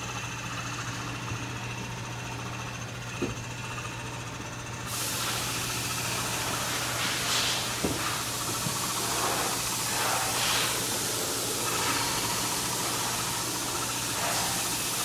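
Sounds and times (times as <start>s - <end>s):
cutting machine humming: 0.0s - 15.0s
loud hiss: 4.9s - 15.0s.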